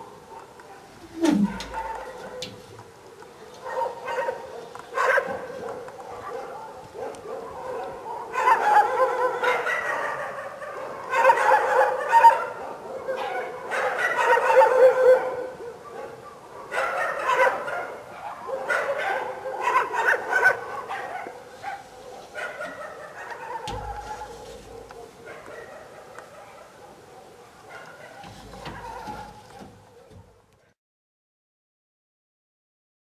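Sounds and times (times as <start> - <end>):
dogs barking: 0.0 - 30.8.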